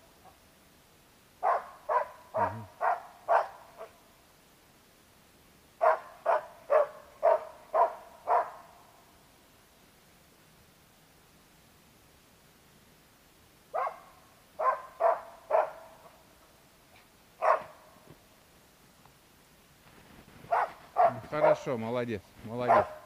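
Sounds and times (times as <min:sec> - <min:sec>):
dog barking: 0:01.4 - 0:04.0, 0:05.8 - 0:08.7, 0:13.7 - 0:16.1, 0:17.4 - 0:17.8, 0:20.5 - 0:21.7, 0:22.6 - 0:23.0.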